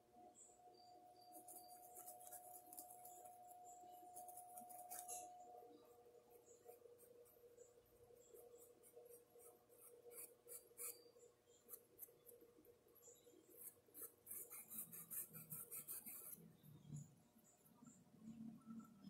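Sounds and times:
faint steady hum: 0.0 - 19.0
paintbrush scratching on porcelain: 1.2 - 12.4, 13.1 - 16.6.

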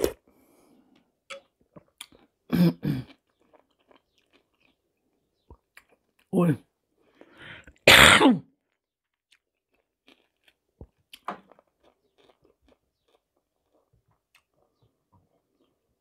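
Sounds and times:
chewing and lip smacks: 0.9 - 2.4, 3.0 - 6.3, 8.8 - 15.9
woman coughing: 7.9 - 8.5.

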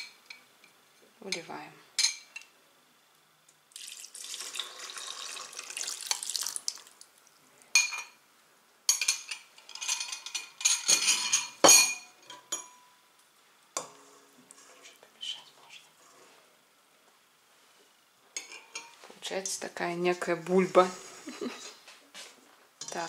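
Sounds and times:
liquid pouring into metal bowl: 3.7 - 7.1.

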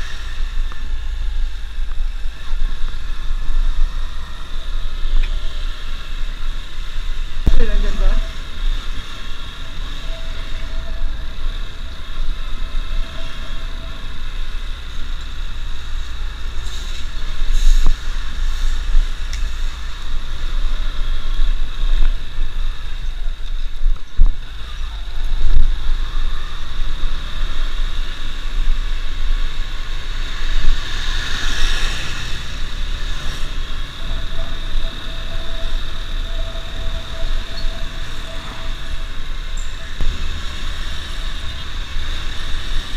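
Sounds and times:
wind rumble on microphone: 0.0 - 42.9.

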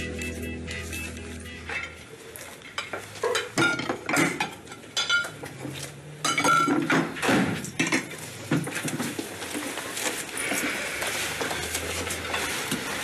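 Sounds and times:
dishes and cutlery clinking: 2.6 - 5.5, 12.2 - 12.9.

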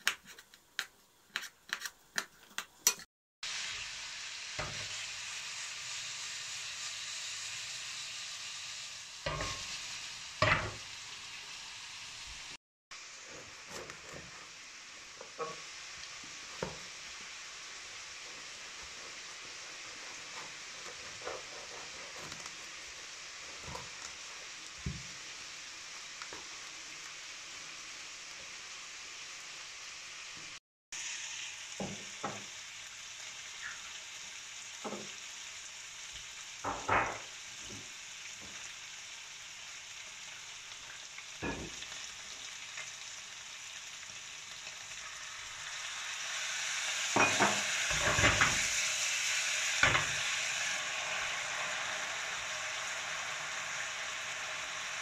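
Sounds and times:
meat sizzling in a frying pan: 3.4 - 55.0
knocks and scrapes in pan: 20.2 - 22.7.

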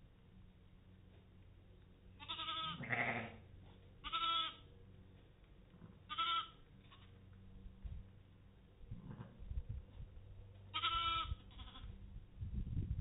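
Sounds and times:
lambs bleating: 2.2 - 3.4, 4.0 - 4.6, 6.0 - 7.1, 10.7 - 12.0
rough low sound: 6.7 - 10.8.

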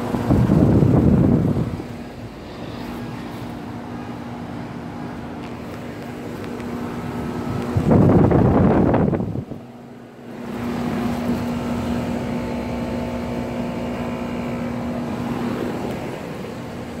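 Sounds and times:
air conditioner fan rush: 0.0 - 17.0
air conditioner hum: 0.0 - 17.0.

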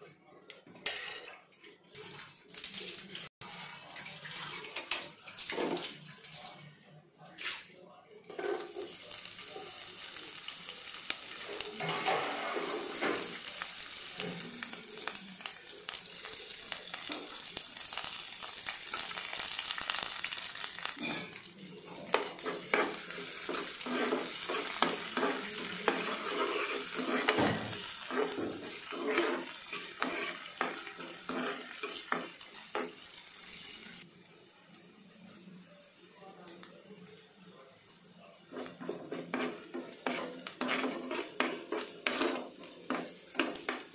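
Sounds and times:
metal spatula scraping a pan: 0.7 - 1.5, 11.3 - 14.4, 22.1 - 34.0, 38.5 - 43.9
vegetables sizzling in hot oil: 8.6 - 43.9.

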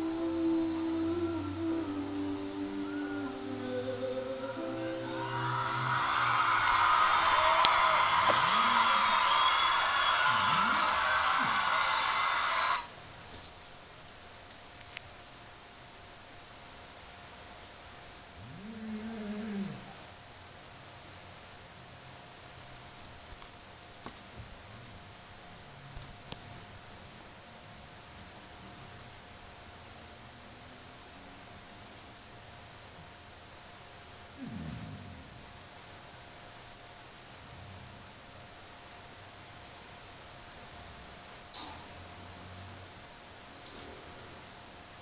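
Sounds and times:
low steady tone: 0.0 - 6.1
crickets trilling: 0.0 - 45.0.

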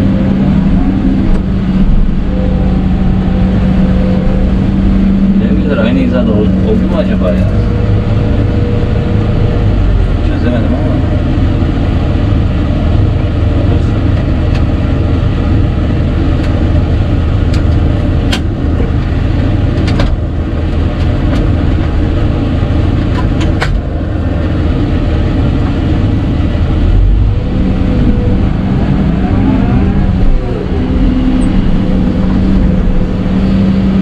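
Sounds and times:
excavator diesel engine running: 0.0 - 34.0
wavering whine: 0.0 - 34.0
sharp clicks and knocks: 17.5 - 19.1, 19.7 - 20.2, 23.0 - 23.8.

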